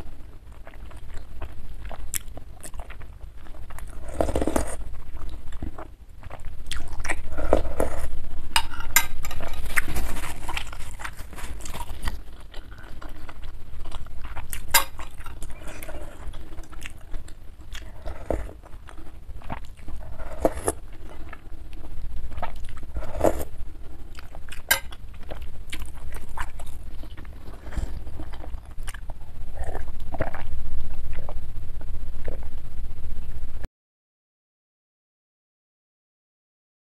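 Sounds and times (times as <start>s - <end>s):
person slurping soup: 15.5s - 19.1s, 19.9s - 21.3s, 22.9s - 23.5s, 27.0s - 28.5s.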